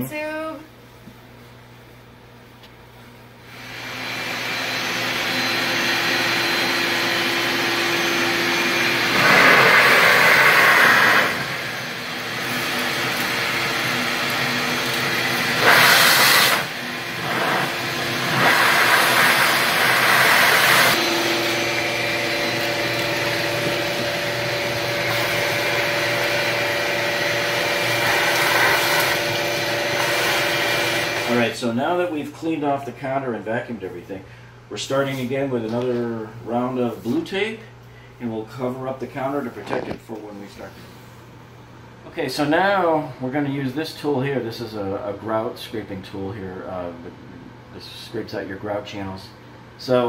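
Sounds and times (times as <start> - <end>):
vacuum cleaner running: 3.4 - 31.9.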